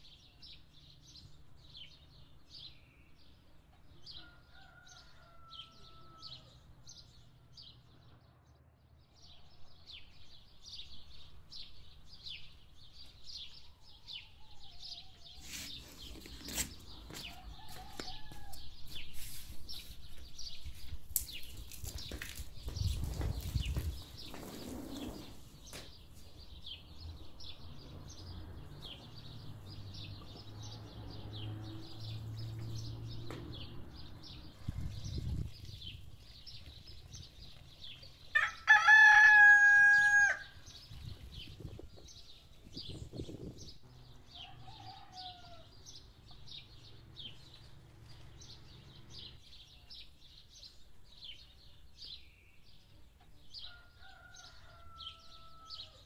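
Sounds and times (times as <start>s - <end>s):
small birds chirping: 0.0s - 56.0s
rooster crowing: 4.1s - 6.6s, 17.1s - 18.7s, 38.3s - 40.6s, 44.4s - 45.8s, 53.7s - 56.0s.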